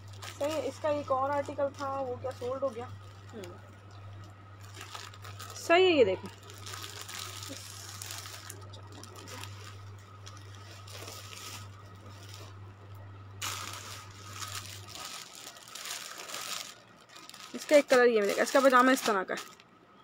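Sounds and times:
clothes and plastic rustling: 0:00.0 - 0:20.0
steady low hum: 0:00.0 - 0:20.0.

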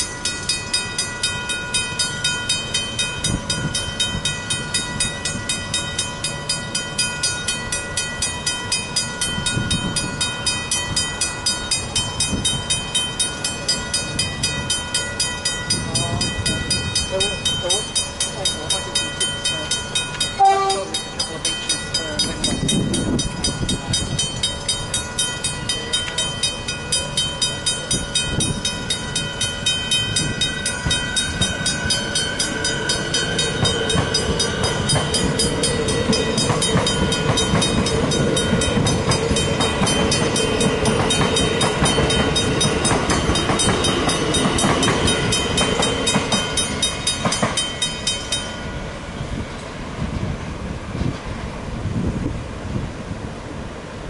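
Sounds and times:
level crossing bell ringing: 0:00.0 - 0:48.8
train rumbling and clattering: 0:00.0 - 0:54.0
train horn blast: 0:20.4 - 0:21.1.

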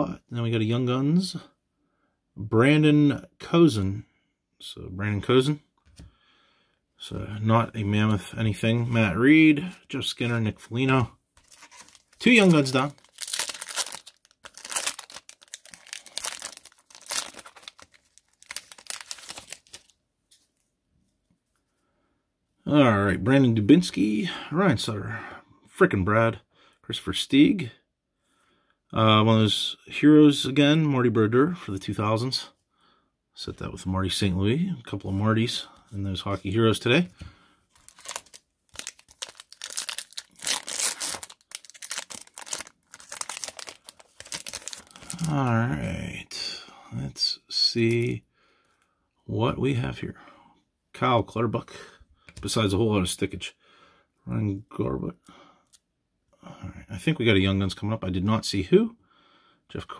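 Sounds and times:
card pack wrapper tearing: 0:11.4 - 0:19.9, 0:37.8 - 0:45.5.

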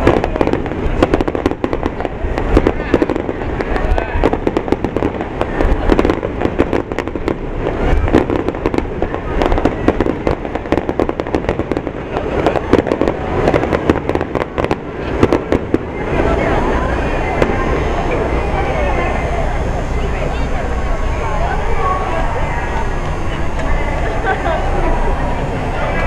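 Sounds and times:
deep booms: 0:00.0 - 0:18.4
fireworks bangs and crackles: 0:00.0 - 0:26.0.

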